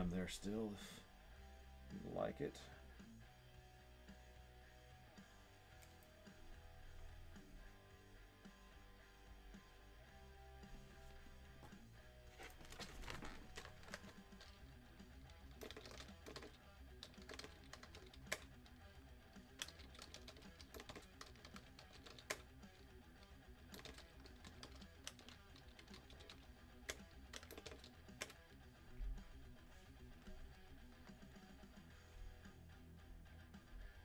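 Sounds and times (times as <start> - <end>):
quiet background music: 0.0 - 34.0
typing on computer keyboard: 12.4 - 14.6, 15.3 - 18.8, 19.5 - 22.5, 23.7 - 28.4.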